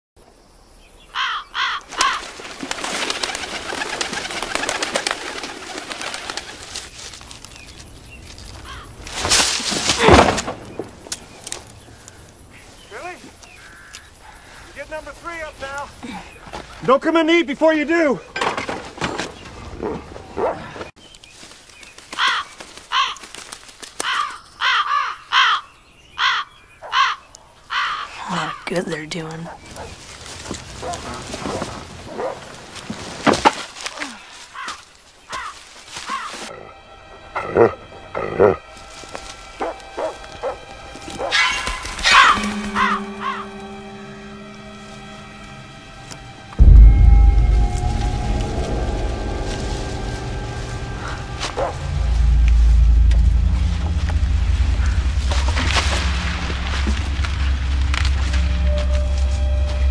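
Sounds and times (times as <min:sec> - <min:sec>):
crows cawing: 0:01.1 - 0:02.4, 0:08.6 - 0:09.0, 0:13.4 - 0:14.8, 0:22.1 - 0:28.7, 0:34.1 - 0:36.6, 0:39.6 - 0:44.5.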